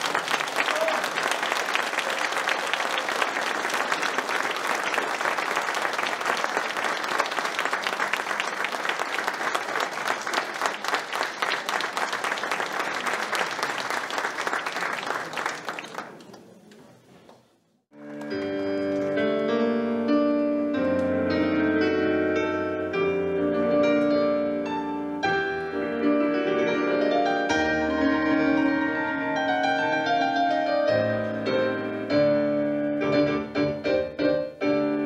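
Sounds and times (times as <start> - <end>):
audience applauding: 0.0 - 17.4.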